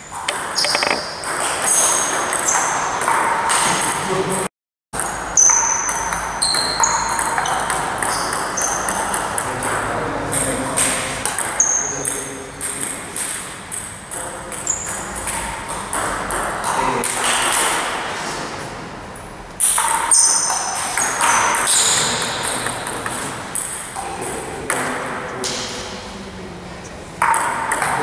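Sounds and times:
table tennis balls clicking: 0.2s - 1.4s.

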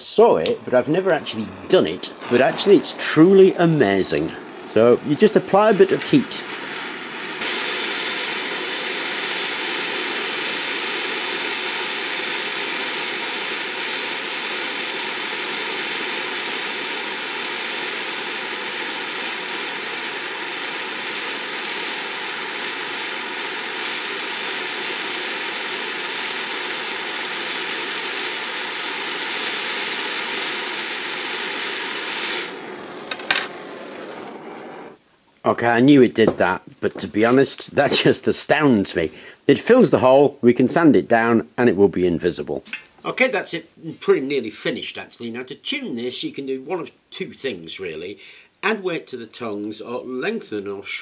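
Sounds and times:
blowtorch hissing roar: 0.0s - 35.0s.

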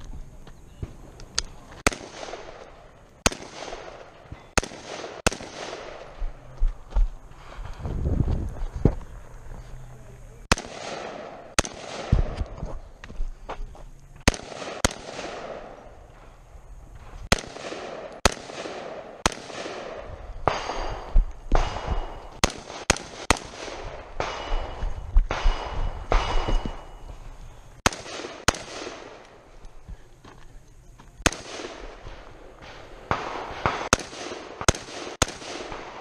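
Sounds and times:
rifle shots with echo: 1.8s - 6.4s, 10.4s - 12.6s, 14.2s - 16.3s, 17.0s - 29.4s, 31.2s - 36.0s.

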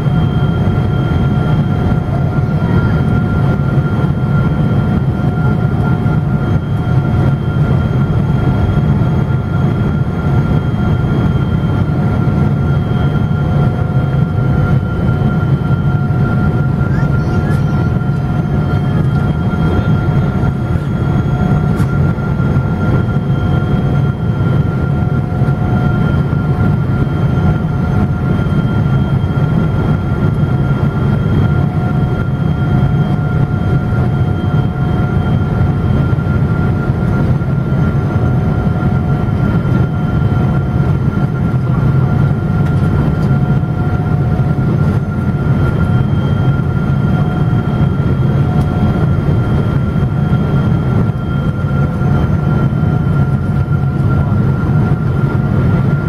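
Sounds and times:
jet cabin deep rumble: 0.0s - 56.0s
faint whining tones: 9.6s - 27.2s.

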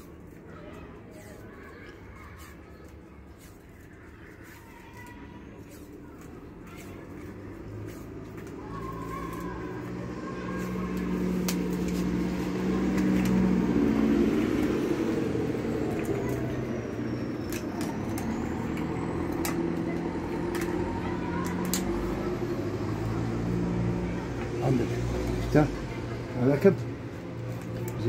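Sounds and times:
hoses clicking and knocking: 10.6s - 23.2s.

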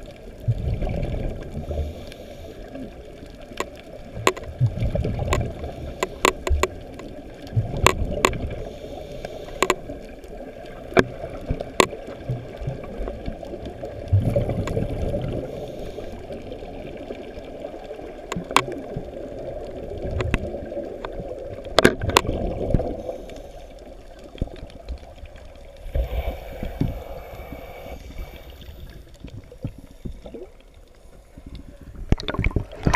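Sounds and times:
underwater bubbling: 0.0s - 32.9s
sharp clicks: 5.3s - 7.0s.

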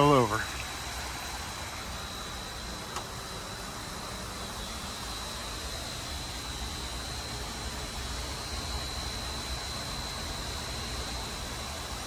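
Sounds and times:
falling water hissing: 0.0s - 6.4s.

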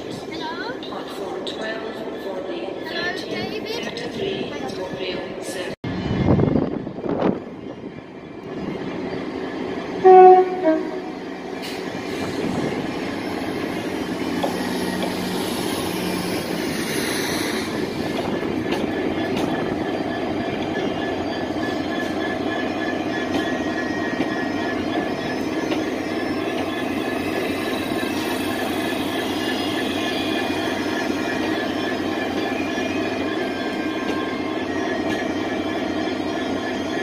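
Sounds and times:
train rumbling on rails: 0.0s - 37.0s
train horn blasts: 10.0s - 11.2s.

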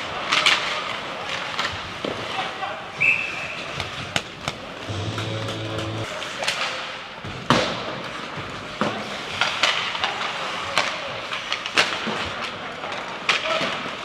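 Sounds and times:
hockey sticks and puck cracking: 0.1s - 2.5s, 8.7s - 14.0s.

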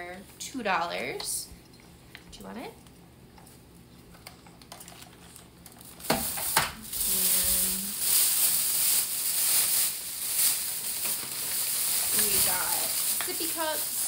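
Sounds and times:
plastic bag rustling: 4.8s - 14.0s.

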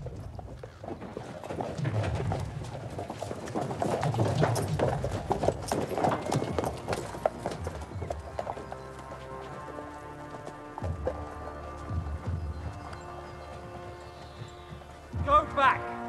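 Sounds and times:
horse hooves clip-clopping: 0.0s - 16.0s
music: 4.8s - 16.0s.

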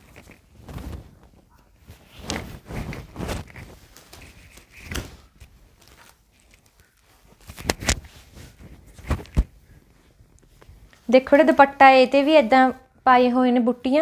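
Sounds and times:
cloth flapping: 0.0s - 10.9s
fabric rustling: 0.0s - 12.9s.

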